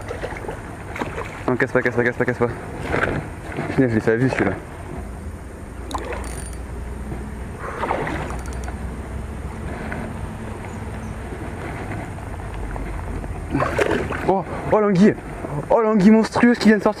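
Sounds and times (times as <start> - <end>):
low wind rumble on microphone: 6.6 - 15.7.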